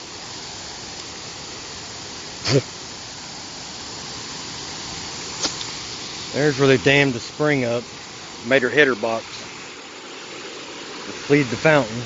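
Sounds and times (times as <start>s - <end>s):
water rushing over dam: 0.0s - 12.0s
man's short vocal sound: 2.4s - 2.7s.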